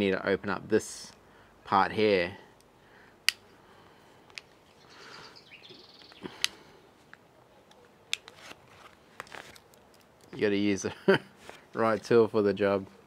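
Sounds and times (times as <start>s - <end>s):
faint high chirping: 4.7s - 6.4s.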